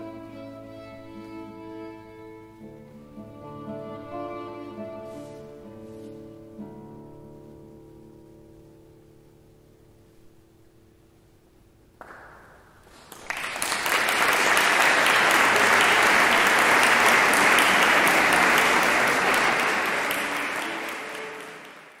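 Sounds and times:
audience applauding: 0:12.8 - 0:22.0.

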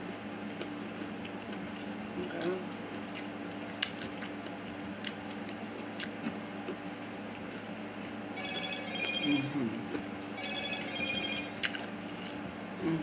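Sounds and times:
steady low hum: 0:00.0 - 0:13.0
soft eating clicks: 0:00.4 - 0:07.6, 0:11.6 - 0:12.5
phone ringing electronic ringtone: 0:08.4 - 0:09.6, 0:10.4 - 0:11.6.

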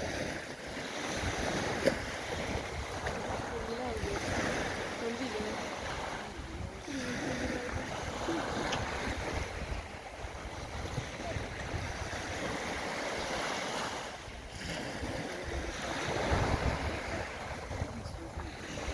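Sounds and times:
waves washing up a beach: 0:00.0 - 0:18.9
wind buffeting microphone: 0:00.0 - 0:18.9.

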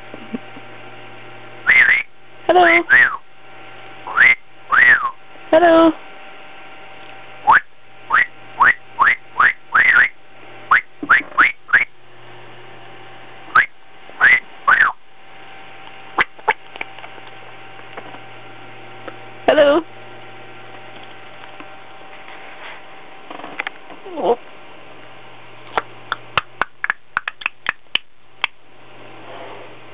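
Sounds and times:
parrot whistling: 0:01.7 - 0:02.1, 0:02.7 - 0:03.2, 0:04.1 - 0:05.2, 0:07.5 - 0:11.9, 0:13.5 - 0:15.0
parrot call: 0:01.7 - 0:03.2, 0:04.1 - 0:05.2, 0:07.5 - 0:11.9, 0:13.5 - 0:15.0.

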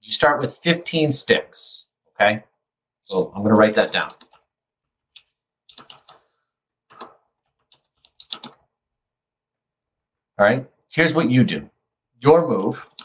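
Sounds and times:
computer keyboard typing: 0:03.7 - 0:04.5, 0:05.1 - 0:06.3, 0:06.9 - 0:08.7.

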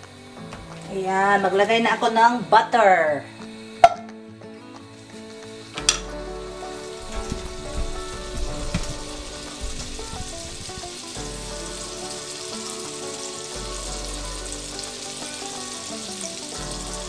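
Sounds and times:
background music: 0:00.0 - 0:17.0
butter sizzling in a pan: 0:04.6 - 0:17.0.

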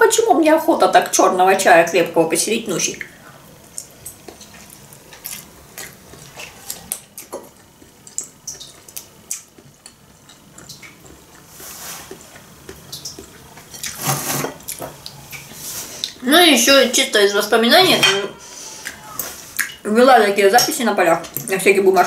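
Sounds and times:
chewing: 0:03.0 - 0:16.2
pasta slurping: 0:03.8 - 0:16.2
wet mouth clicks and smacks: 0:05.2 - 0:11.5, 0:19.6 - 0:19.8.

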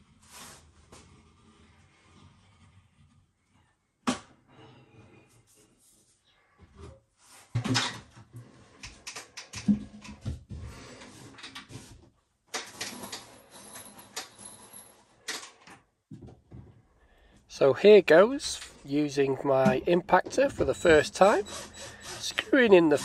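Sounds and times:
timber knocking and scraping: 0:19.4 - 0:21.7.

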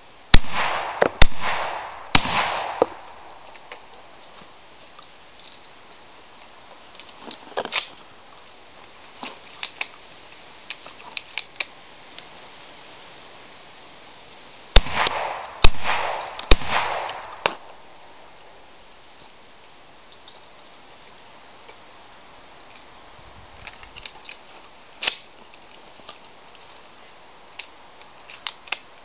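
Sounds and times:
gunshots: 0:00.3 - 0:03.7, 0:14.8 - 0:17.8
sharp clicks: 0:00.4 - 0:04.0, 0:14.8 - 0:17.7.

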